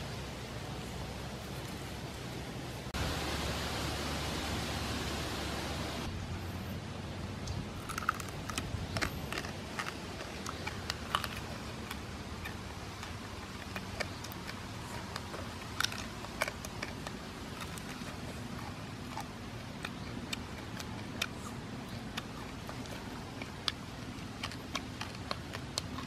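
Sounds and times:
steady hiss: 0.0 - 7.8
man biting and chewing: 7.8 - 26.0.

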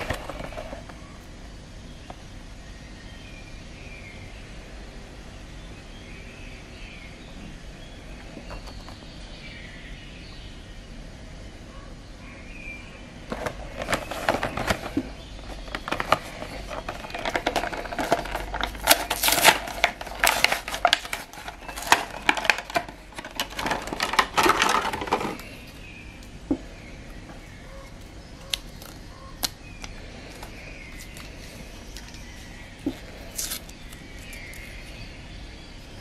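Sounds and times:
plastic packaging crinkling: 0.0 - 0.9, 13.3 - 25.8, 28.4 - 35.1.

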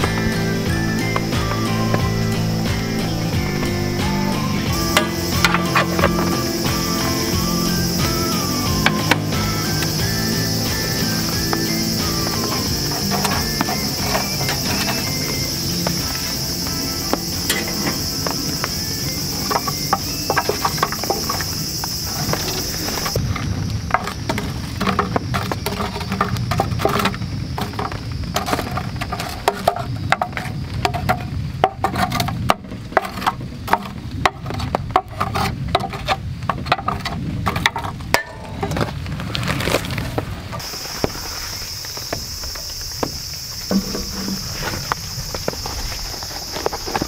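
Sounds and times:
insect chirring: 0.0 - 47.0
tongs clinking on charcoal: 16.6 - 21.5.

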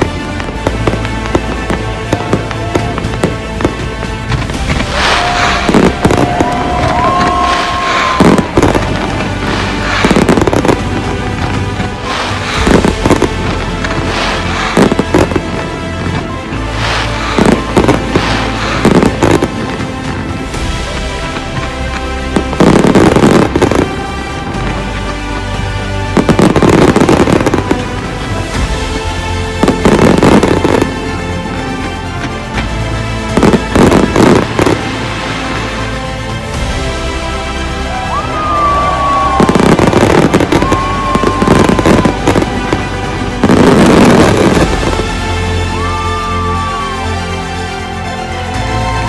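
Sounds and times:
fireworks bangs and crackling: 0.0 - 49.0
music playing: 0.0 - 49.0.

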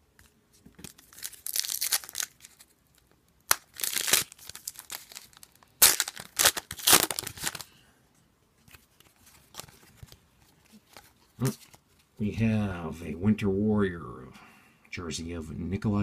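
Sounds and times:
card pack wrapper crinkling and tearing: 0.2 - 7.7, 8.7 - 11.8.

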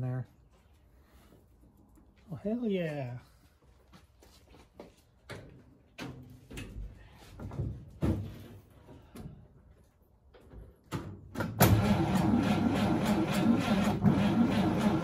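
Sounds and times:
knocks and clunks: 5.3 - 9.4.

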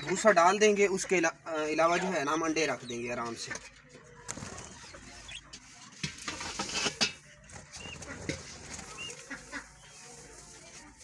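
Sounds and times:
high bird chirps: 4.4 - 5.5, 8.8 - 10.2
dry straw rustling: 4.4 - 11.0.

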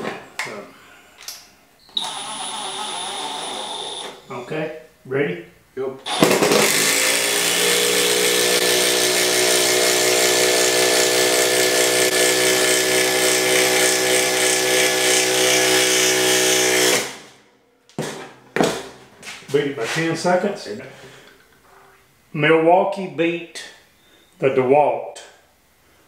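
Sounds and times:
impact driver driving a bolt: 6.1 - 16.0.

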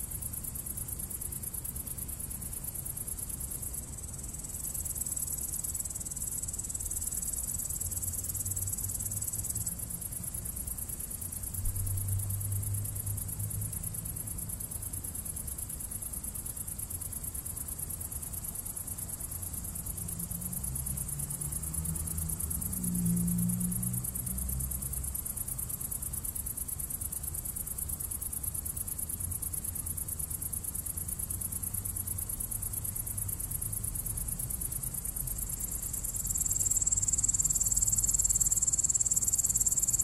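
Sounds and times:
insect chirring: 25.2 - 40.0.

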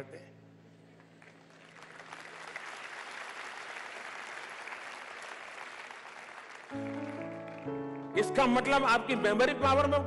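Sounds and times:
audience applauding: 1.0 - 8.2
music with held notes: 6.7 - 10.0.

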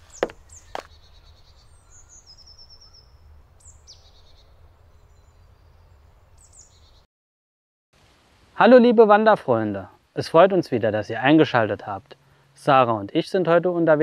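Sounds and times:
songbirds chirping and trilling: 0.0 - 7.1.

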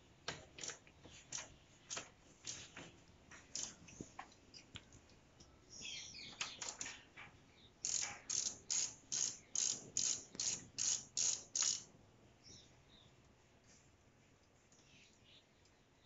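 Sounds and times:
ratchet wrench clicking: 7.8 - 11.9.

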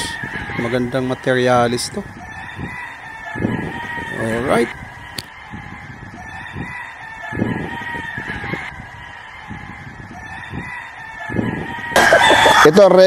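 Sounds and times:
roosters crowing: 0.0 - 13.0.

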